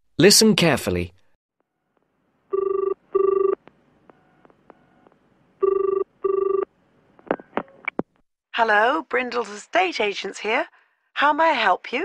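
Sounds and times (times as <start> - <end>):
telephone ringing: 2.5 - 3.6, 4.2 - 6.7.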